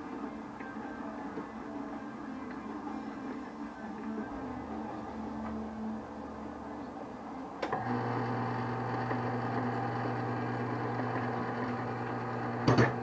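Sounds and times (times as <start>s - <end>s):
electric motor humming: 7.6s - 13.0s.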